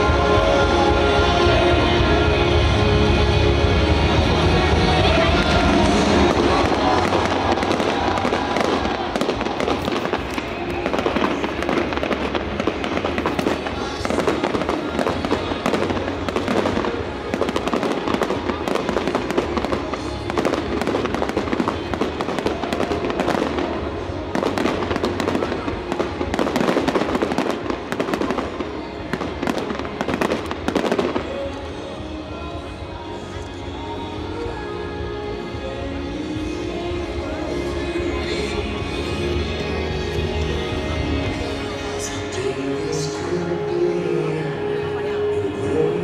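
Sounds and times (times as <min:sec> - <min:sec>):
fireworks crackling and banging: 0:00.0 - 0:34.2.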